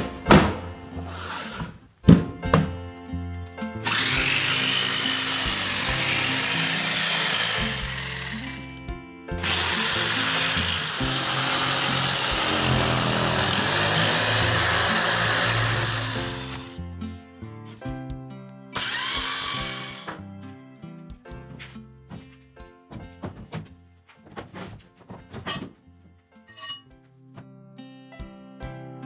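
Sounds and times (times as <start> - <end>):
jigsaw cutting plywood: 1.0 - 1.8, 3.8 - 8.8, 9.4 - 16.8, 18.8 - 20.2.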